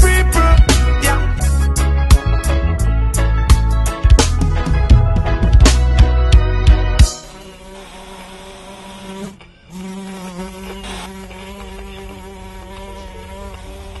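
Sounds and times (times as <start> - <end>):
pitched hum: 7.0 - 14.0
buzzing drone: 7.1 - 14.0.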